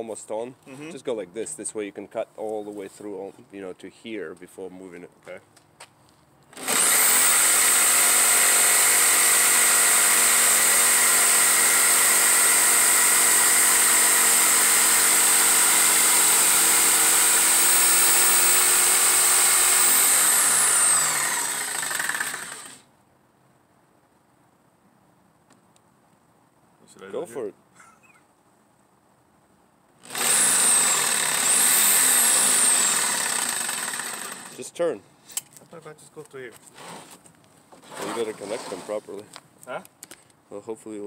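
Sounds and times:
jigsaw cutting wood: 6.5 - 22.8, 30.0 - 34.6.

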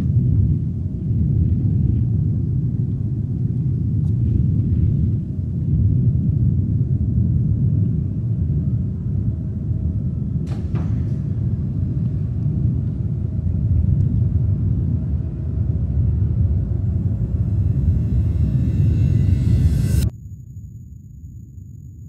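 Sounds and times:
low rumble: 0.0 - 20.6
sharp knock: 10.5 - 11.4.

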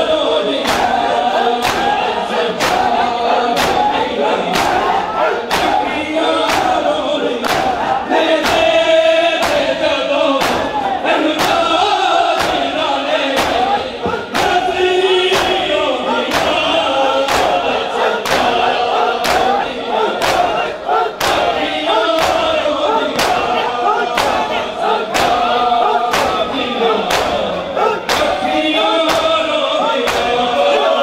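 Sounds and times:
palms striking chests in unison: 0.6 - 30.6.

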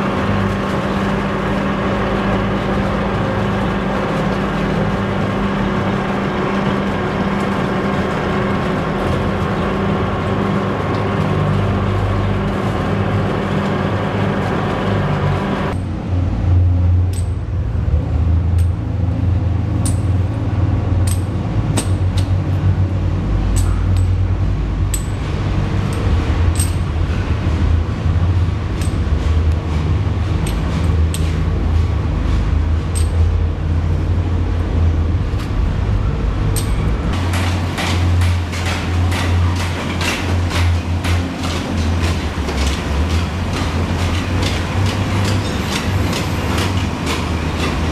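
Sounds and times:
mining machinery droning: 0.0 - 47.9
metallic clinks and knocks: 32.9 - 33.3.

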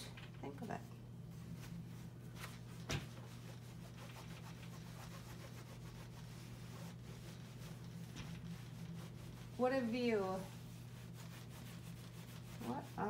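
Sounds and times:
steady low hum: 0.0 - 13.0
iron rubbing over fabric: 1.3 - 13.0.

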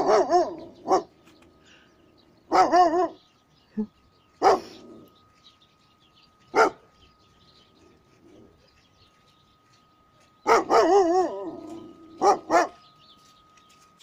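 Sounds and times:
large dog barking: 0.0 - 1.1, 2.5 - 3.2, 4.4 - 5.1, 6.5 - 6.9, 10.4 - 12.8.

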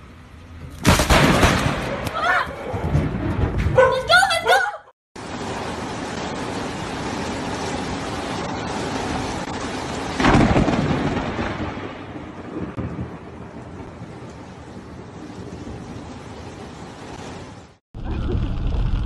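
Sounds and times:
thunderclap: 0.8 - 4.1, 5.2 - 19.0
rain falling: 5.2 - 19.0.

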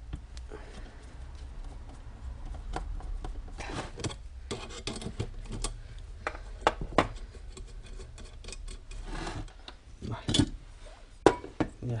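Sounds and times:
metal parts rubbing and scraping: 3.6 - 9.5.

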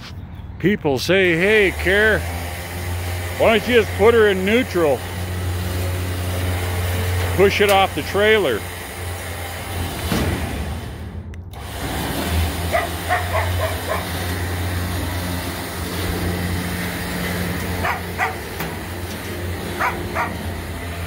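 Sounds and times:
dog barking and yipping: 12.7 - 14.2, 17.7 - 18.5, 19.7 - 20.5.

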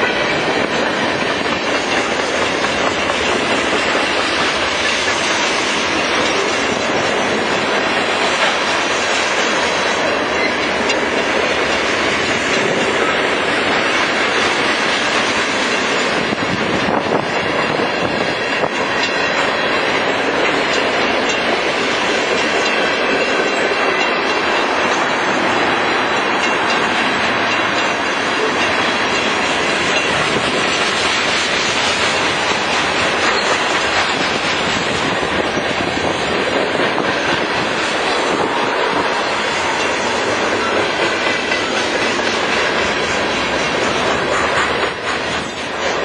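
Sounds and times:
train wheels rolling on rails: 0.0 - 46.0.

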